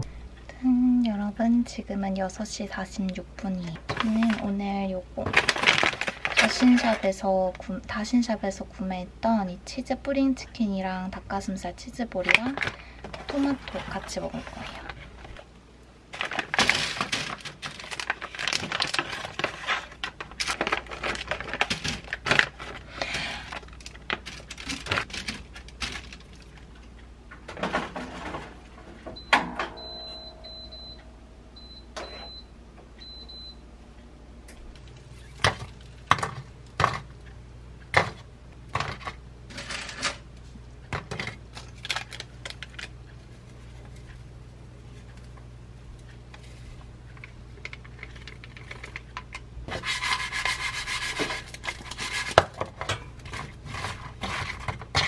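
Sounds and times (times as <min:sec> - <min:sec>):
air fryer humming: 0:00.0 - 0:55.0
plastic packaging crinkling: 0:05.3 - 0:07.2, 0:16.1 - 0:26.6, 0:41.5 - 0:43.0.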